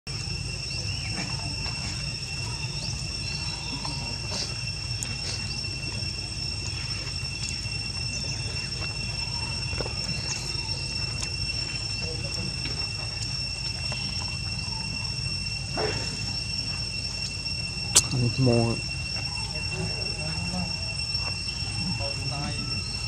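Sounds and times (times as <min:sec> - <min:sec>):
insects droning: 0:00.1 - 0:23.0
monkeys moving over dry leaves: 0:00.1 - 0:23.0.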